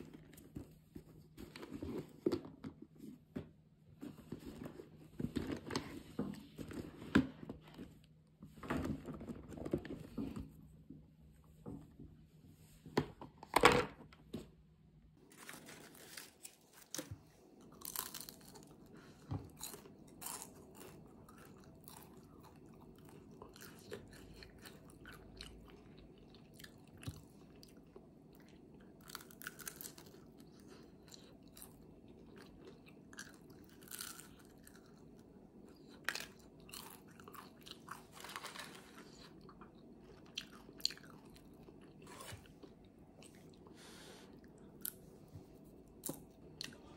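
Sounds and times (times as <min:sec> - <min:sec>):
crunchy food being chewed: 0:15.4 - 0:43.7.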